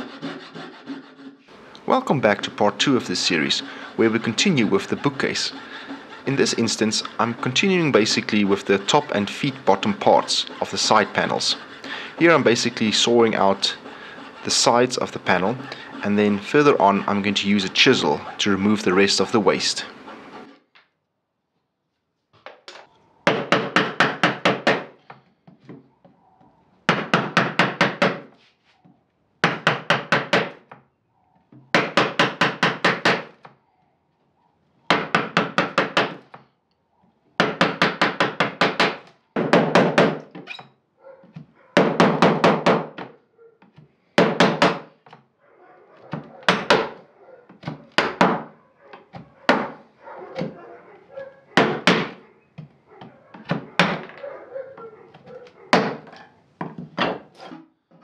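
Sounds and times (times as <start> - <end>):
chisel knocking into wood: 29.4 - 30.6, 34.9 - 36.4, 37.4 - 40.4, 46.1 - 47.0, 47.6 - 48.5, 49.5 - 49.8, 51.6 - 54.2, 55.1 - 57.3.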